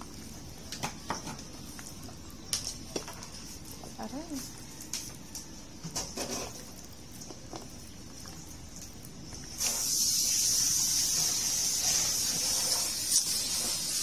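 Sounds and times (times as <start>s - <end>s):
hand mixing fish in a bowl: 0.0s - 14.0s
loud steady hiss: 9.5s - 14.0s.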